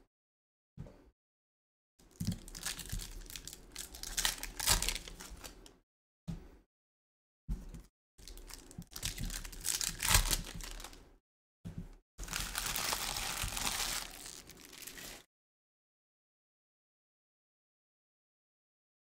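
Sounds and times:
card pack wrappers tearing and crinkling: 2.2 - 5.7, 8.2 - 11.0, 12.2 - 15.3.

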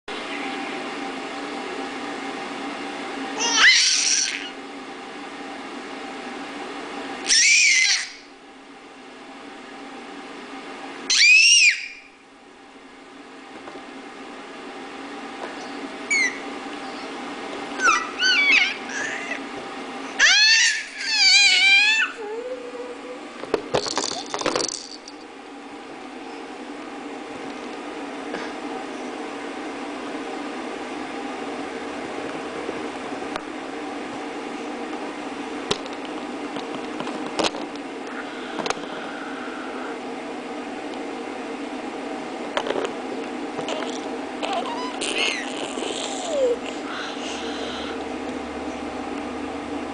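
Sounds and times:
steady hum: 0.1 - 49.9
baby squealing: 3.4 - 4.5, 7.2 - 8.3, 11.1 - 12.1, 16.1 - 16.4, 17.8 - 19.4, 20.2 - 22.2, 44.4 - 46.6.

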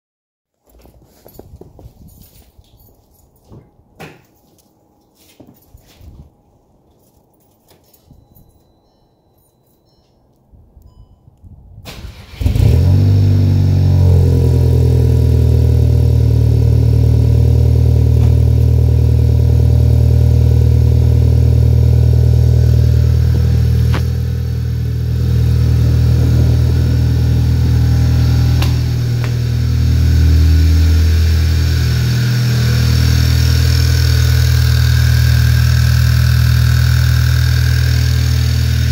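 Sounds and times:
car engine cranking and idling: 11.9 - 38.9
turbo whine: 12.4 - 38.9.

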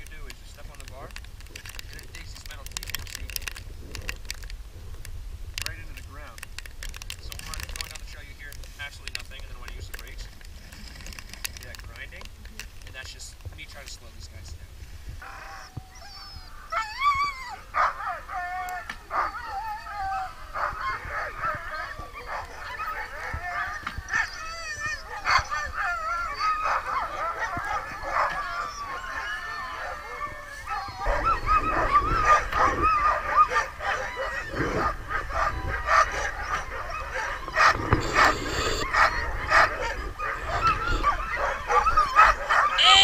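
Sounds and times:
sled dogs yipping and barking: 15.2 - 43.0.

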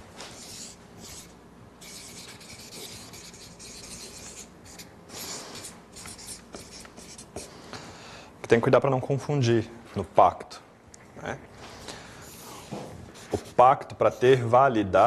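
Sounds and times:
marker writing on paper: 0.2 - 7.5, 13.1 - 14.4.

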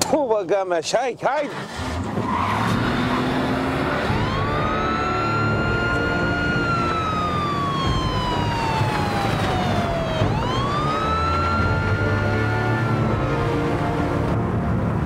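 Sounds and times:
car engine driving off: 1.4 - 14.9
police siren wailing: 3.1 - 14.3.

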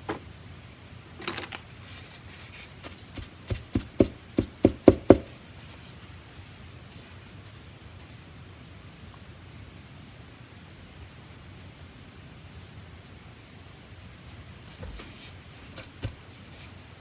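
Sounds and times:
sharp knocks on hard surface: 3.5 - 5.3.

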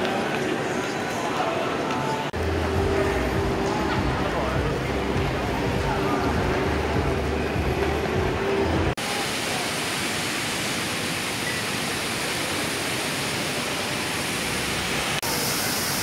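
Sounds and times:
indoor mall background: 0.0 - 16.0
fountain water splashing: 9.0 - 16.0.

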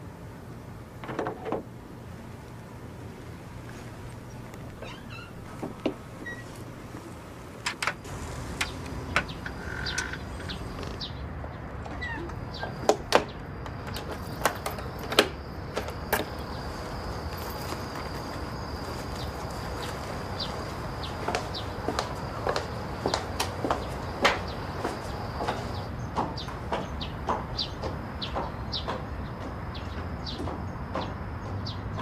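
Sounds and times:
sharp clicks and knocks: 7.6 - 11.1.

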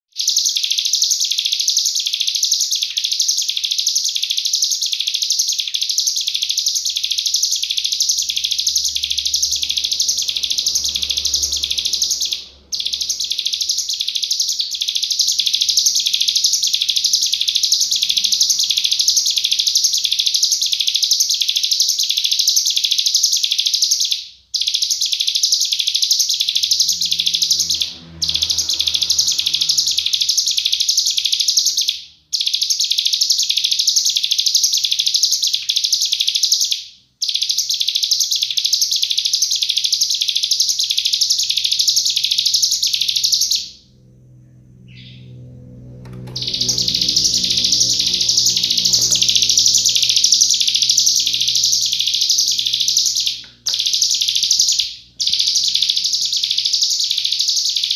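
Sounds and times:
bird singing rapid high notes: 0.1 - 57.9.

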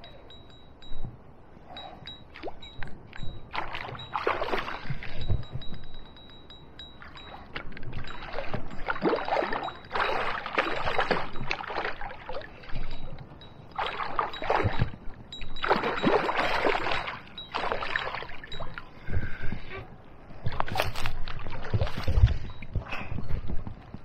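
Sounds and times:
fish thrashing and splashing water: 3.5 - 5.4, 7.9 - 13.0, 13.7 - 15.0, 15.6 - 18.8.

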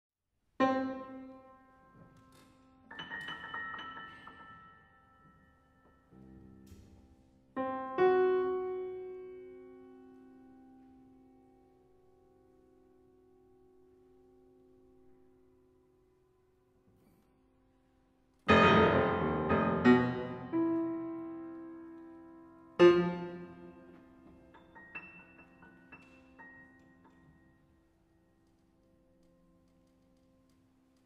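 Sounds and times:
grand piano chords and notes: 0.6 - 31.0.

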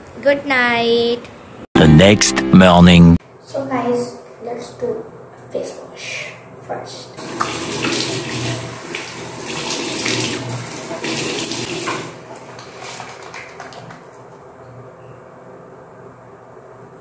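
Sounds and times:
steady running water: 7.2 - 14.1.

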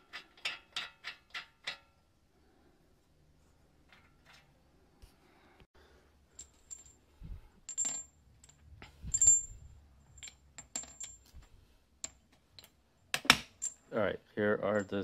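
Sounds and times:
metal studs clinking: 6.3 - 13.9.

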